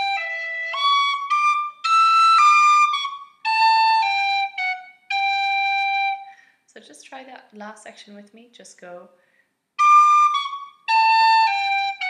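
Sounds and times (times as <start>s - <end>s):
tin whistle melody: 0.0s - 6.4s, 9.8s - 12.0s.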